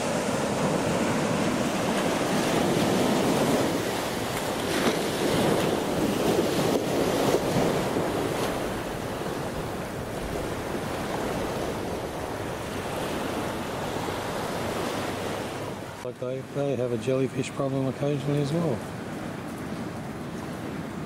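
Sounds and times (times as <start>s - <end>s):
wind on microphone: 0.0s - 16.0s
surf breaking on beach: 0.0s - 21.0s.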